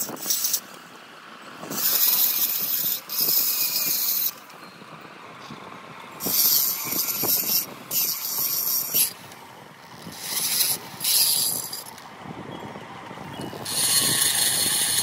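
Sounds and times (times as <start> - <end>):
rotary tool grinding metal: 0.0 - 0.8, 1.6 - 4.8, 6.2 - 12.0, 13.3 - 15.0.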